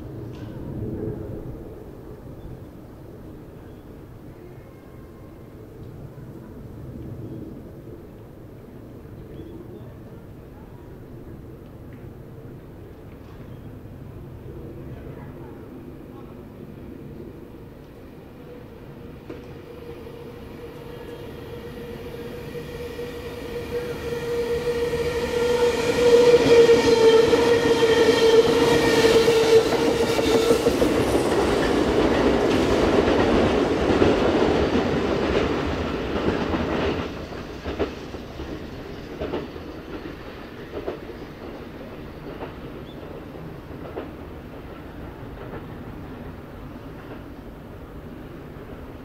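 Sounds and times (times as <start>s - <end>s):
rush of train cars passing: 9.9s - 49.0s
train whine: 11.3s - 49.0s.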